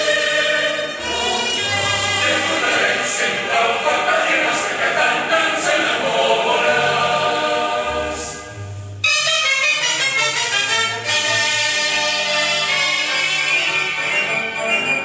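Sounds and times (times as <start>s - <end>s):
mixed choir singing: 0.0s - 8.6s
bright full music: 0.0s - 15.0s
low bass notes: 6.9s - 9.1s.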